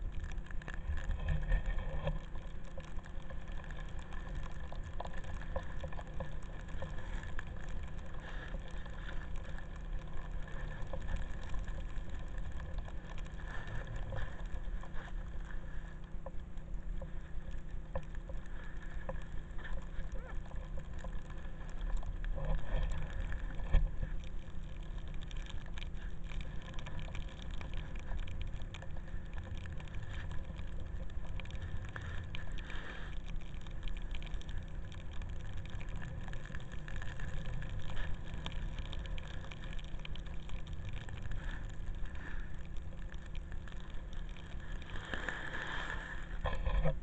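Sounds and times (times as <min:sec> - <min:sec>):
board sliding over snow: 0:44.9 - 0:47.0.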